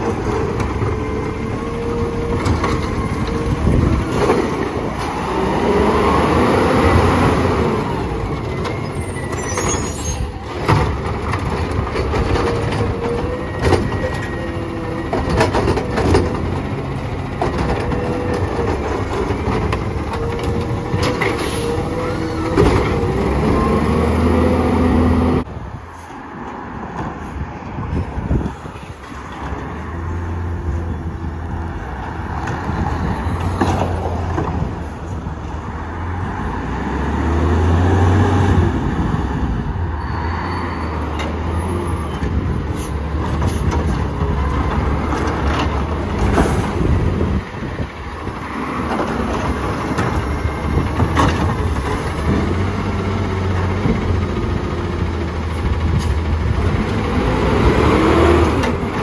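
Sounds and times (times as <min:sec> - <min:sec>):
garbage truck diesel engine: 0:00.0 - 0:27.4, 0:28.2 - 0:59.0
knocks and bangs from carts: 0:10.4 - 0:14.3, 0:15.0 - 0:21.4, 0:22.4 - 0:23.4, 0:48.8 - 0:59.0.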